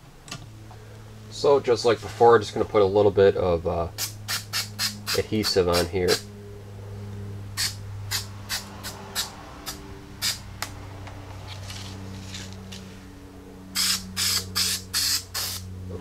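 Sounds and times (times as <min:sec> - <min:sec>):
steady low hum: 0:00.0 - 0:16.0
aerosol spray hissing bursts: 0:13.8 - 0:15.6.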